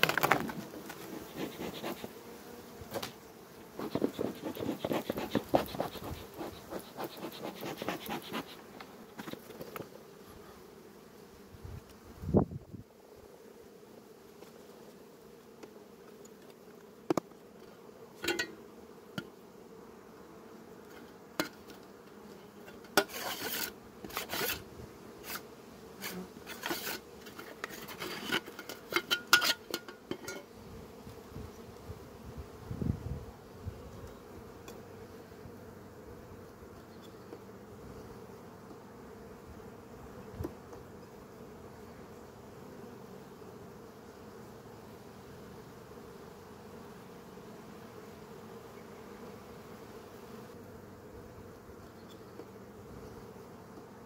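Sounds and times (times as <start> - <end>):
hive tool scraping wooden frames: 0.0 - 10.6, 20.8 - 31.1
honeybees humming: 0.0 - 54.0.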